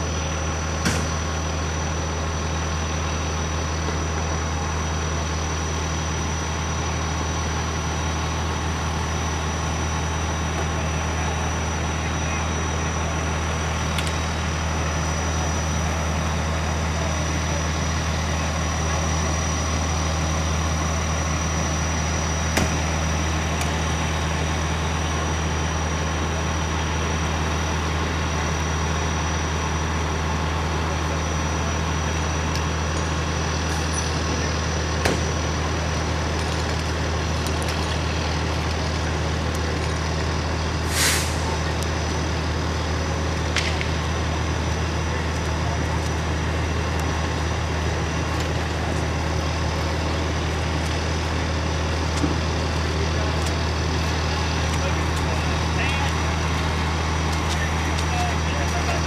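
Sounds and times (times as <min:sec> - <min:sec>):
fire truck engine idling: 0:00.0 - 0:59.0
air hiss: 0:40.8 - 0:41.6.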